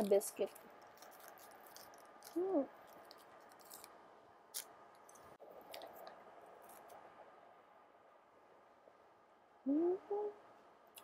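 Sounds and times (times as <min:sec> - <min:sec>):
woman humming mm: 0:02.4 - 0:02.7, 0:09.6 - 0:10.4.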